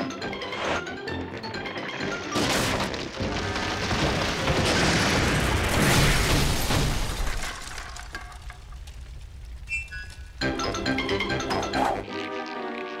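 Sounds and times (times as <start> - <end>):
background music: 0.0 - 3.9, 10.4 - 13.0
tree crashing onto house: 2.6 - 9.6.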